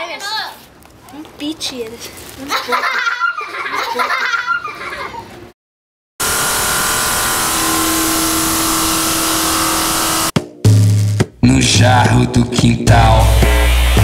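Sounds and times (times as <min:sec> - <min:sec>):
children laughing: 0:02.3 - 0:05.6
loud hiss-like drone: 0:06.2 - 0:10.4.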